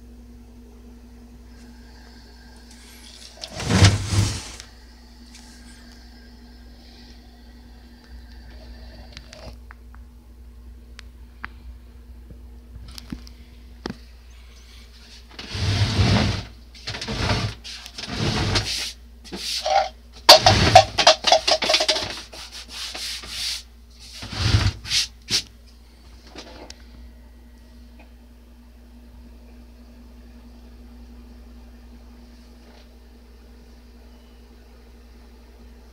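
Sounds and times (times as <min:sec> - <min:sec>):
steady low hum: 0:00.0 - 0:35.9
rubbing and scuffing: 0:02.8 - 0:04.7, 0:15.0 - 0:20.8, 0:21.9 - 0:25.5.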